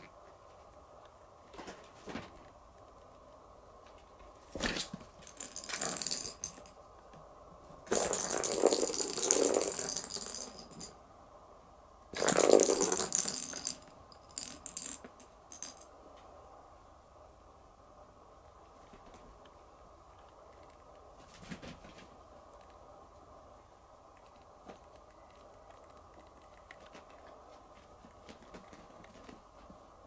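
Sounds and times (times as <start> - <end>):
kitten rustling and rattling: 3.9 - 6.8, 7.8 - 11.0, 12.2 - 16.0, 20.2 - 22.8, 24.2 - 29.8.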